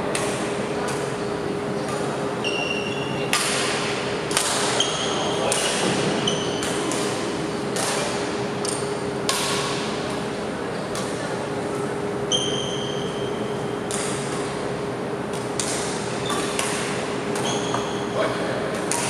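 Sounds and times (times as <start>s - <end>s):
rackets striking shuttlecock: 0.1s - 2.3s, 3.3s - 12.0s, 13.8s - 14.6s, 15.3s - 18.1s, 18.7s - 19.0s.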